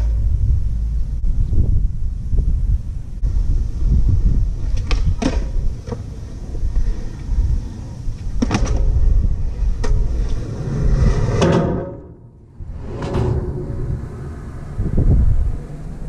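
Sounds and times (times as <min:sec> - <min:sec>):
skateboard wheels rumbling on concrete: 0:00.0 - 0:16.0
skateboard clacking on ground: 0:04.6 - 0:12.2.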